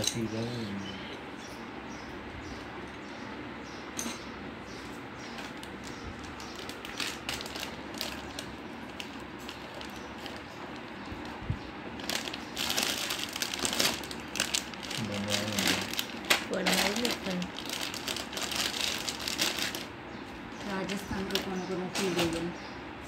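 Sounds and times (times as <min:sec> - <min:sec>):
plastic packaging crinkling: 0:05.3 - 0:20.0.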